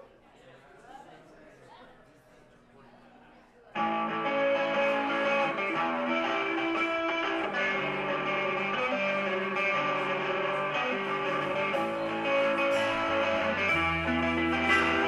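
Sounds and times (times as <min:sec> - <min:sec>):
live band with electric guitars: 0:03.8 - 0:15.0.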